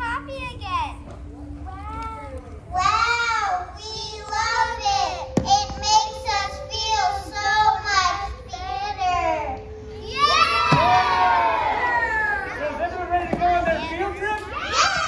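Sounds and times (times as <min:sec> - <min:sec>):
steady low tone: 0:00.0 - 0:14.5
children singing together: 0:02.9 - 0:09.4.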